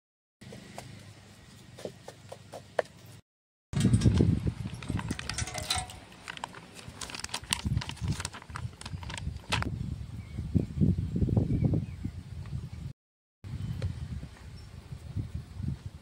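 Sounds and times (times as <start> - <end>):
sharp clicks and knocks: 3.8 - 6.6.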